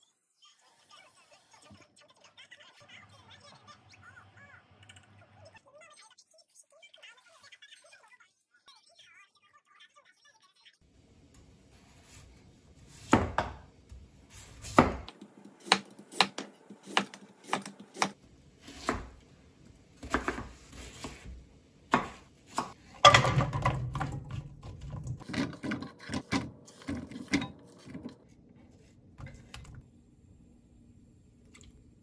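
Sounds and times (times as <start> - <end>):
knife chopping radish on board: 12.9 - 13.6, 14.6 - 19.2, 20.0 - 22.9.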